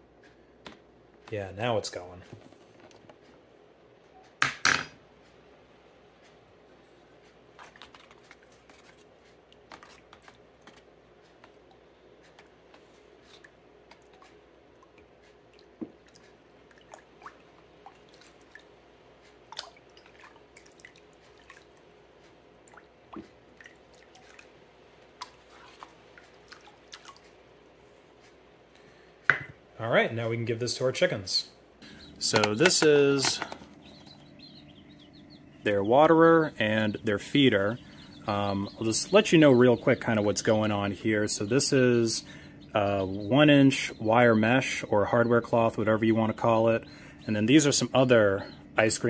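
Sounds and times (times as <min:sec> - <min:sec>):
spoon swishing liquid: 0:25.2 - 0:27.3.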